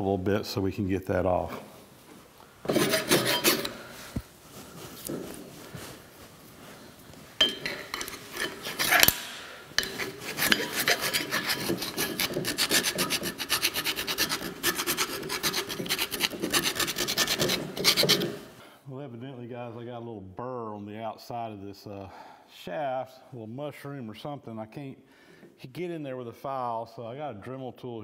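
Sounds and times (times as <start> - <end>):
hand file rasping on metal: 2.7 - 3.8, 7.4 - 9.2, 9.8 - 18.5.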